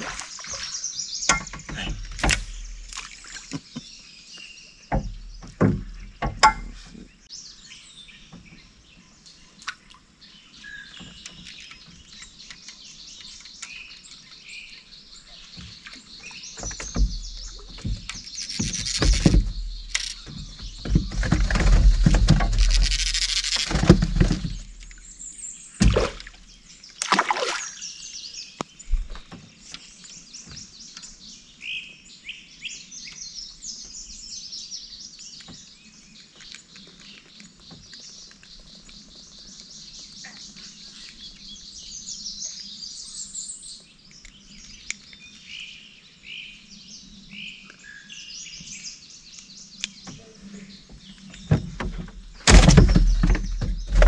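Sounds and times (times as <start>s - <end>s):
birds chirping: 0.0s - 54.0s
sharp knocks: 4.9s - 6.8s, 16.6s - 24.8s, 25.8s - 26.4s, 51.5s - 54.0s.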